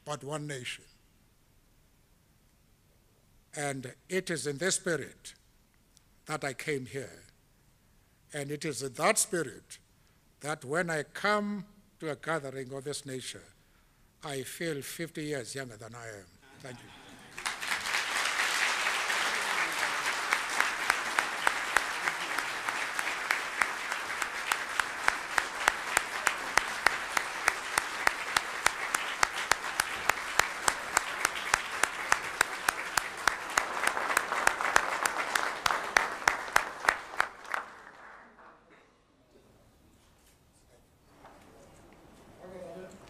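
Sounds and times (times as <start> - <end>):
audience applauding: 17.2 - 38.6.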